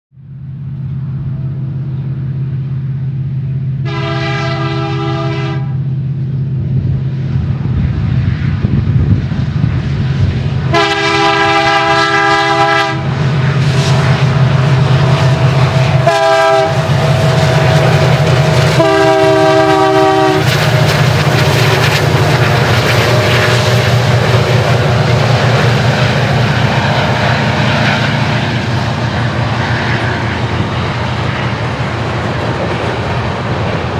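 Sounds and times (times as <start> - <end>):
diesel locomotive engines droning: 0.1 - 33.9
locomotive air horn: 3.8 - 5.9, 10.7 - 13.2, 16.0 - 16.9, 18.6 - 20.6.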